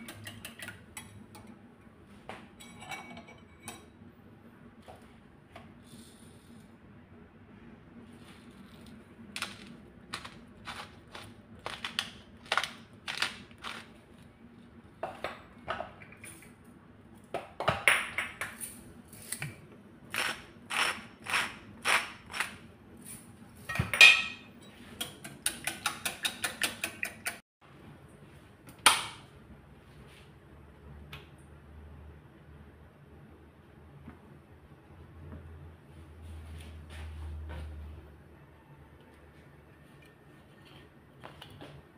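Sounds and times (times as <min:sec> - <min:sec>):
whisk clicking against bowl: 0:25.0 - 0:27.4.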